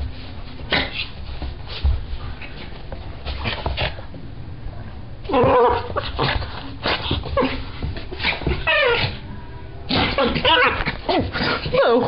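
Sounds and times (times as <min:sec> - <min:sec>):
small dog whining and yipping: 0:08.6 - 0:09.2.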